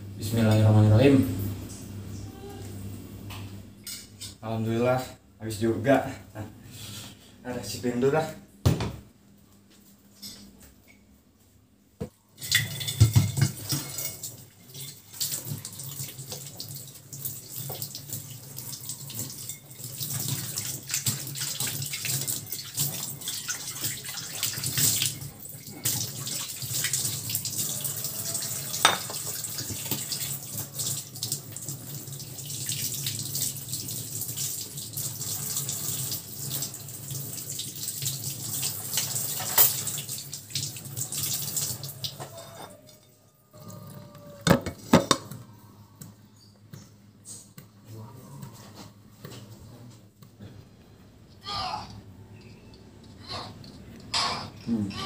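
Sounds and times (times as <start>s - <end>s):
dishware clinking: 12.4s - 15.0s, 19.3s - 20.2s, 28.3s - 29.2s, 39.3s - 39.9s
tap water running into sink: 12.4s - 42.4s.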